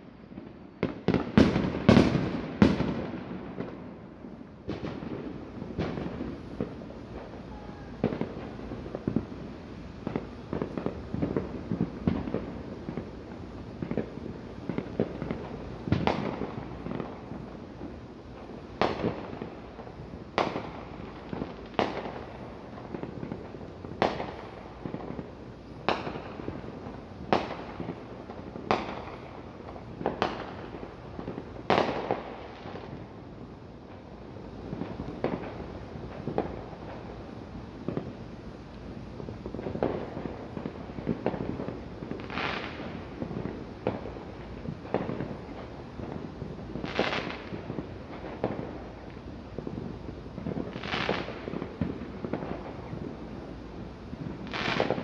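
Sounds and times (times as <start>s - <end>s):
firework bangs echoing: 0.2s - 33.3s, 33.9s - 38.2s, 39.2s - 53.3s, 54.1s - 55.0s
fireworks rattle of pops: 10.0s - 33.2s, 33.9s - 37.2s, 37.8s - 53.2s, 54.1s - 55.0s.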